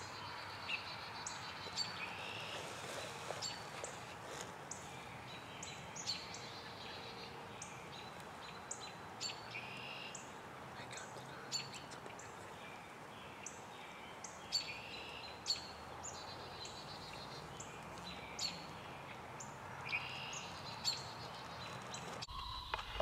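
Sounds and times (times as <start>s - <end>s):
birds chirping: 0.0s - 23.0s
faint steady hiss: 0.0s - 23.0s.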